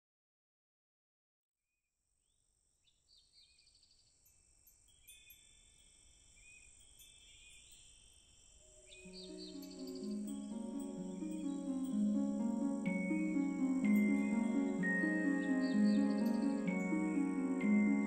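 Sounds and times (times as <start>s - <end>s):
birds chirping and trilling: 2.9s - 18.0s
insects droning: 3.9s - 18.0s.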